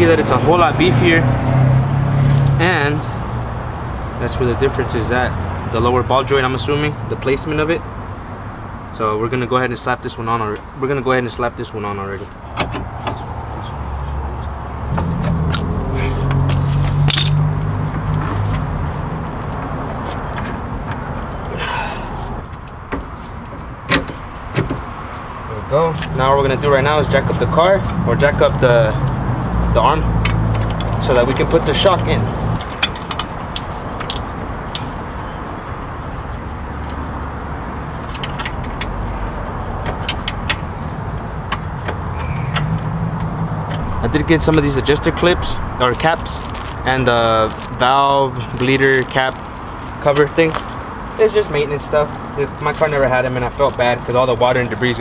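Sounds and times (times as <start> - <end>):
metal tool clicks and clanks: 17.1 - 17.5
background rumble: 42.8 - 49.2.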